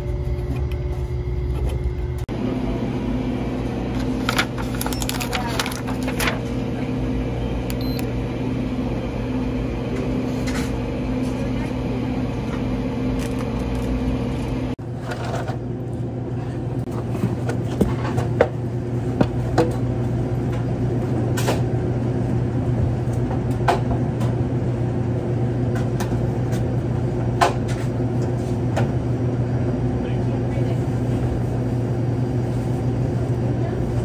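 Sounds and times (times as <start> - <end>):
low machine hum: 0.0 - 34.0.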